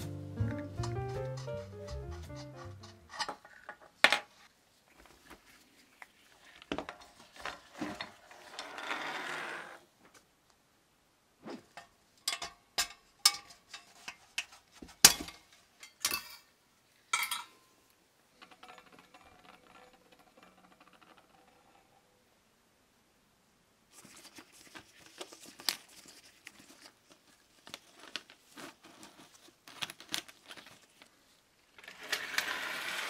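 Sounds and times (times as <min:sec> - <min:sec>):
metal scraping rub: 0:00.5 - 0:03.3.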